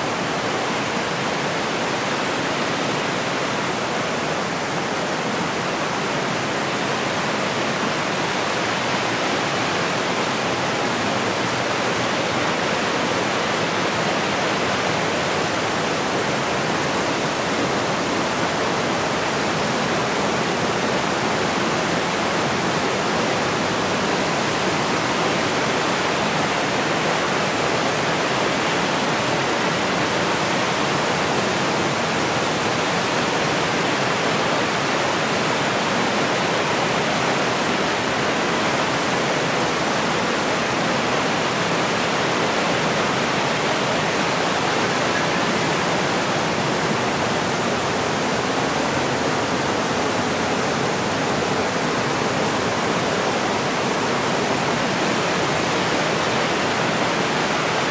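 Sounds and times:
waterfall rushing: 0.0s - 57.9s.

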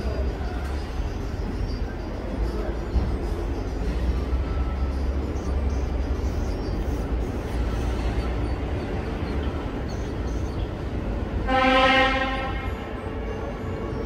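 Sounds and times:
street traffic rumble: 0.0s - 14.0s
vehicle horn honk: 11.4s - 13.2s.

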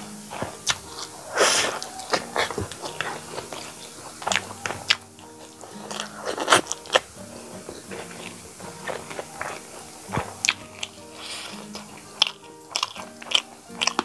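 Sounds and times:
short hiss: 0.0s - 3.2s, 11.1s - 11.7s
soft background music: 0.0s - 14.0s
wet chewing and lip smacks: 0.0s - 14.0s.

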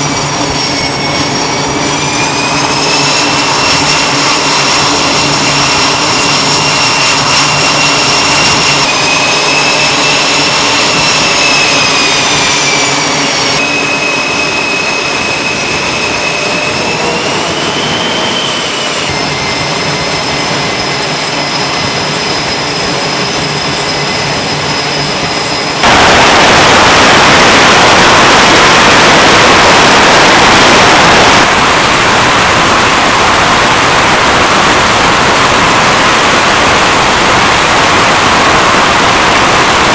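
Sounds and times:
jet engines roaring: 0.0s - 39.9s
jet turbine whine: 0.0s - 39.9s.

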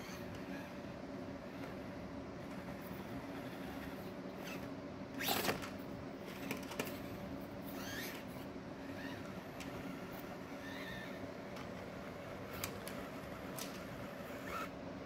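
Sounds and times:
small electric motor whining: 0.0s - 14.8s
faint high squeaks: 6.8s - 11.2s, 14.2s - 14.8s.

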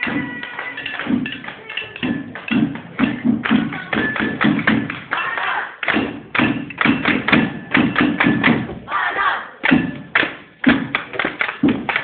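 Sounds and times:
crowd cheering: 5.2s - 5.8s.

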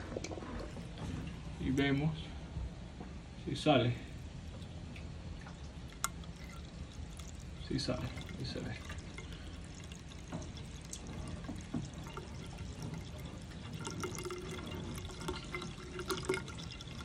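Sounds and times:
water trickling through pipe: 3.5s - 17.0s
small water drips: 4.0s - 17.0s.

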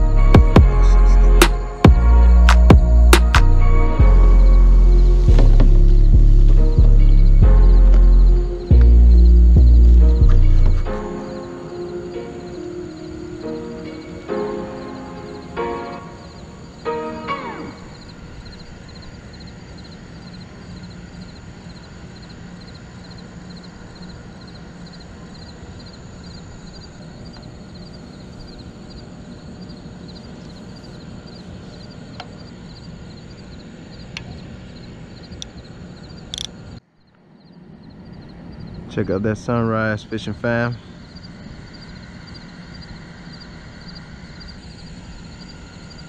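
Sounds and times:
background hiss: 0.0s - 46.0s
high-pitched chirping: 6.9s - 22.3s.

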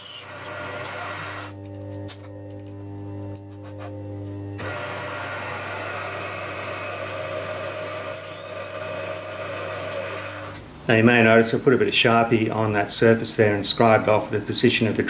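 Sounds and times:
drill bit rasping through metal: 0.0s - 1.5s, 4.6s - 10.6s
milling spindle humming: 0.0s - 10.7s.

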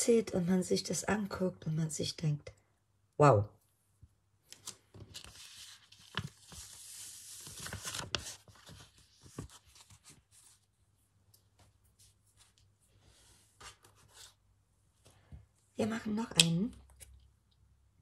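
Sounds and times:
paper peeling with crackling rustle: 4.5s - 10.6s
paper handling: 4.5s - 10.7s.

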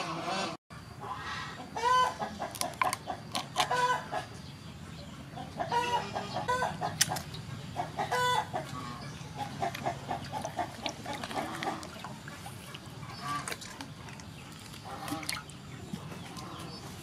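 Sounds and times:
chickens clucking: 0.0s - 17.0s
water splashing in metal basin: 9.6s - 16.6s.

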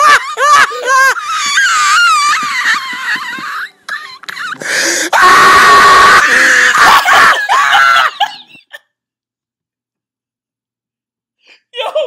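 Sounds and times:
man laughing hysterically: 0.0s - 8.9s.

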